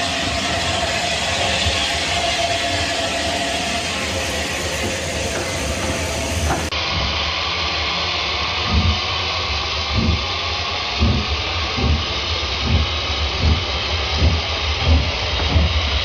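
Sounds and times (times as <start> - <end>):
soft low thumps: 8.7 - 9.1, 9.9 - 10.4, 11.0 - 16.0.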